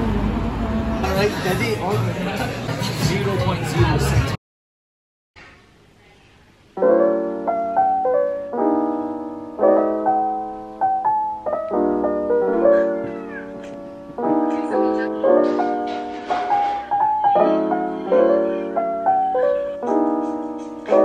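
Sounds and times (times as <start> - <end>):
soft piano chords: 6.8 - 21.0.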